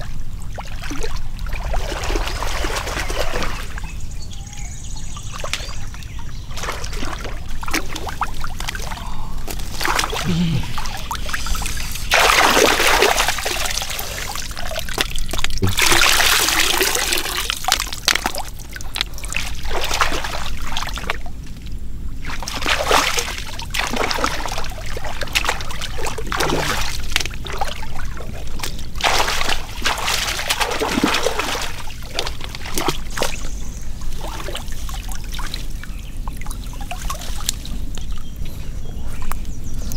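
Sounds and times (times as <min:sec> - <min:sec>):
shallow water splashing: 0:00.0 - 0:03.9, 0:05.2 - 0:38.3.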